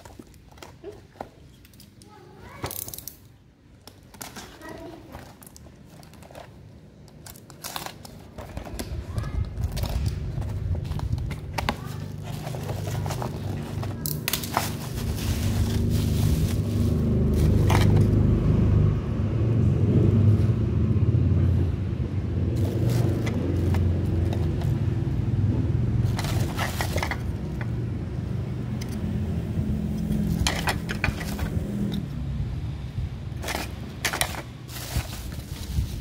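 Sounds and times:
bubble wrap crackling: 3.8 - 18.2, 33.3 - 36.0
low rumble: 9.5 - 33.5.

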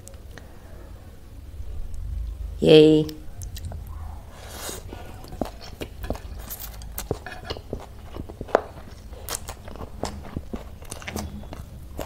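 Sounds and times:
mouth chewing noodles: 3.4 - 12.0.

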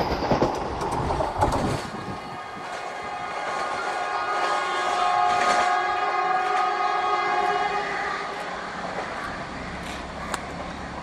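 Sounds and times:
train running noise: 0.0 - 11.0
train horn chord: 3.0 - 8.4.

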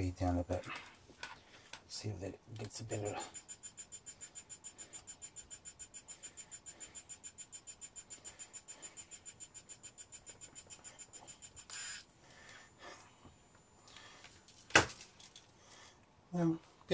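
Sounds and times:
pen feed motor ticking: 2.6 - 12.1.

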